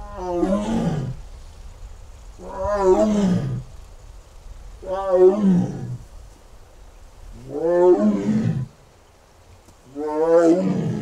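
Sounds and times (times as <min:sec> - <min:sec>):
tiger roaring: 0:07.4 - 0:08.7, 0:09.9 - 0:11.0.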